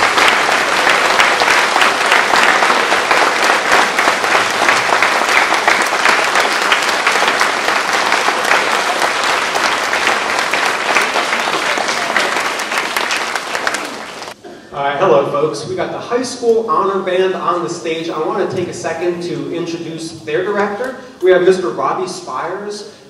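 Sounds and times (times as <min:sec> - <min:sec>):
crowd applauding: 0:00.0 - 0:14.4.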